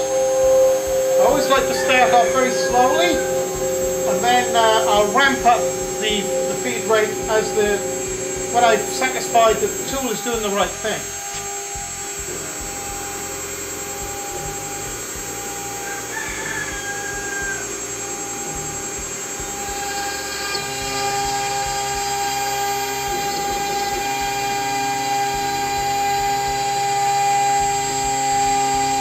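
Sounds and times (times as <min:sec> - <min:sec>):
cnc router spindle whining: 0:00.0 - 0:29.0
router bit carving wood: 0:00.0 - 0:29.0.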